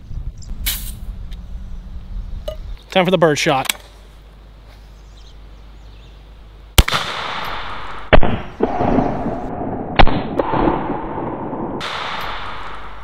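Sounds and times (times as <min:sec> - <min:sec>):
air rifle shots echoing: 0:06.8 - 0:13.0.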